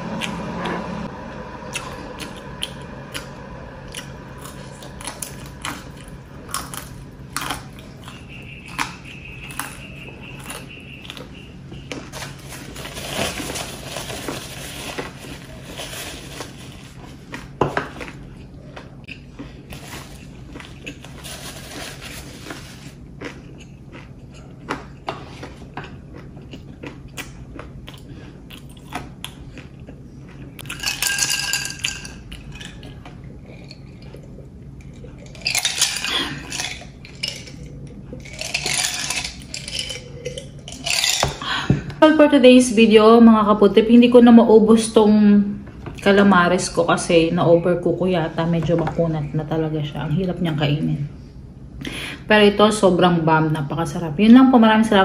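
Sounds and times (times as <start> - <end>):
wet chewing: 22.7 - 30.8
utensils and dishes clinking: 30.6 - 33.0, 34.8 - 41.7.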